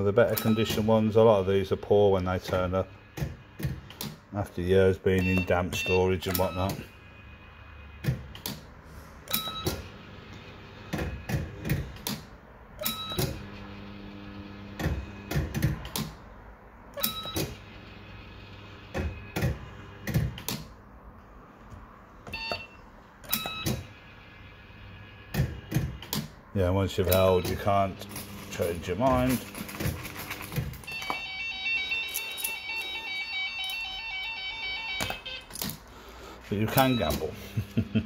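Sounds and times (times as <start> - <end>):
repeated clicks: 18.9 - 20.7, 35.0 - 35.9
short electronic beeps: 36.7 - 37.4.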